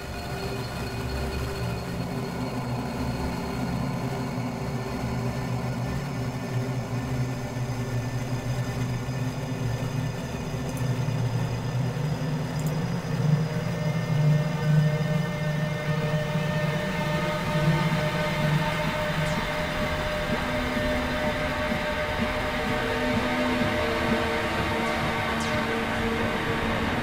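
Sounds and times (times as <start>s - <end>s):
drone of held tones: 12.5s - 27.0s.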